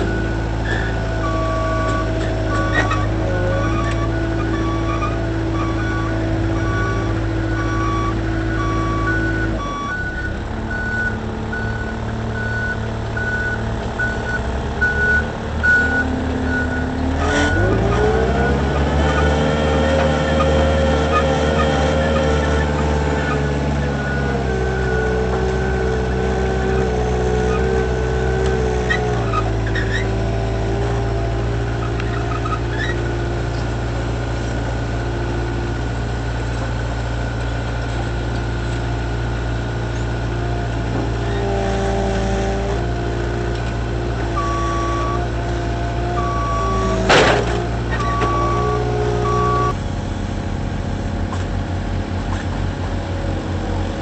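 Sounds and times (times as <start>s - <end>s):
forklift diesel engine running: 0.0s - 54.0s
reversing alarm beeping: 1.1s - 18.6s, 46.2s - 49.8s.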